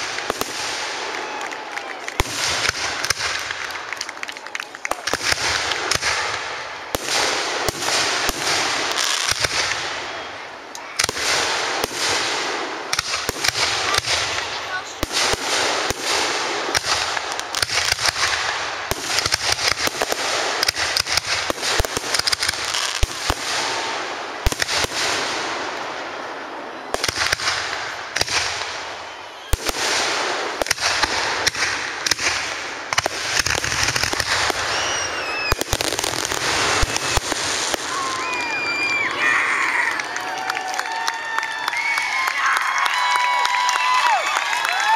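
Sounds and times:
crowd cheering: 0:00.0 - 0:20.2, 0:28.6 - 0:31.3, 0:33.9 - 0:44.9
fireworks bursting and crackling: 0:00.0 - 0:44.9
people whistling: 0:29.0 - 0:29.6, 0:34.6 - 0:35.6.

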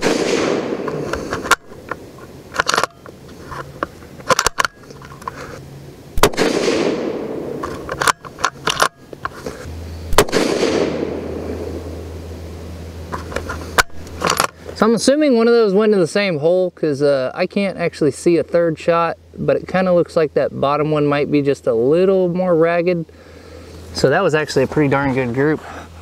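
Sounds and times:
rifle shots: 0:00.0 - 0:01.7, 0:06.2 - 0:08.9, 0:10.1 - 0:11.9.

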